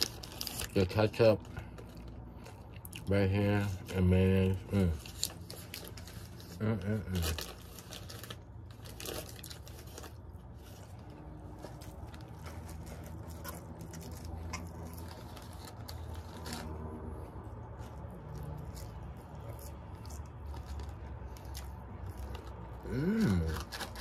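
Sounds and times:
paper wrapper crackling: 0.0 - 24.0
person chewing: 1.5 - 3.8, 4.4 - 24.0.

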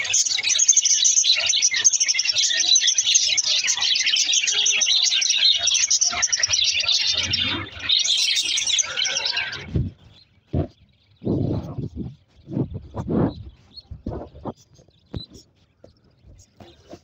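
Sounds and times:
budgerigars chattering: 0.0 - 17.0.

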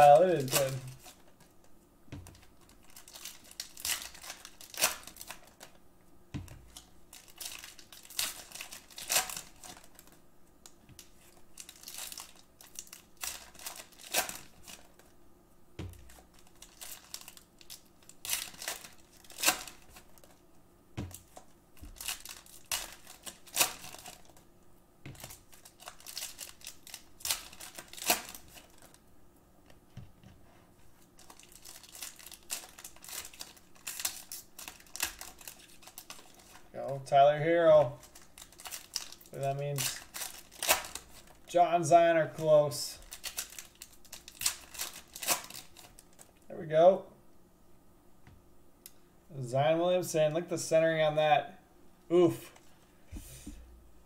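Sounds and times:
foil wrappers tearing and crinkling: 0.0 - 1.5, 2.3 - 5.8, 6.6 - 15.1, 15.9 - 20.4, 21.1 - 24.4, 25.2 - 29.0, 31.1 - 36.7, 38.0 - 41.6, 43.0 - 46.3.

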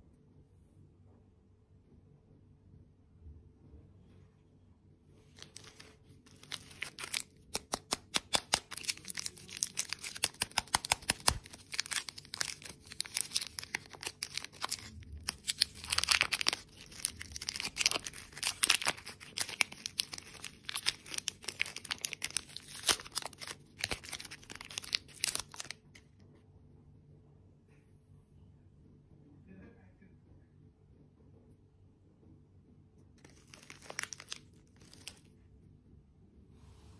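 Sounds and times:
plastic wrappers crinkling and tearing: 5.3 - 26.0, 33.2 - 35.4.

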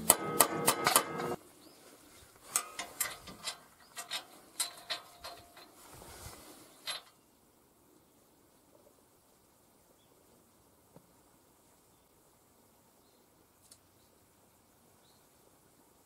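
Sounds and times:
metallic clicks and knocks: 0.0 - 1.4, 2.5 - 5.8.

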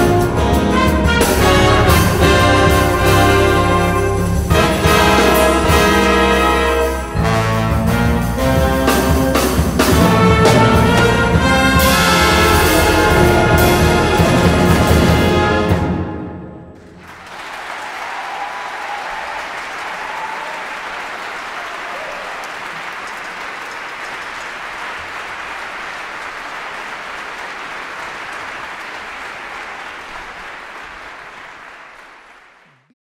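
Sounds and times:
audience applauding: 10.8 - 15.5, 16.8 - 32.9.

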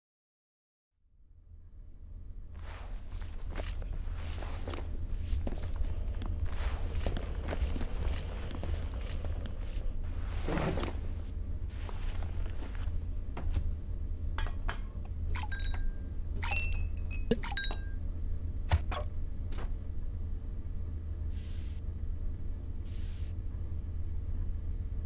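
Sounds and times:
low room hum: 1.0 - 25.0
rubbing swishes: 2.6 - 12.9.

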